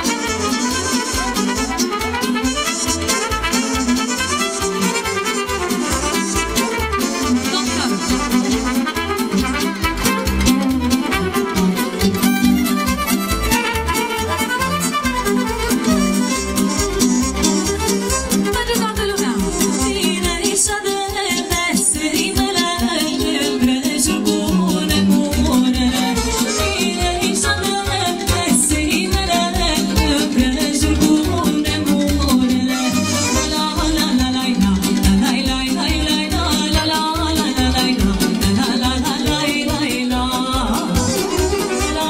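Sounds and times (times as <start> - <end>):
violin melody: 0.0 - 39.9, 40.7 - 42.0
folk dance music by live band: 0.0 - 42.0
quick steady bass beat: 0.0 - 42.0.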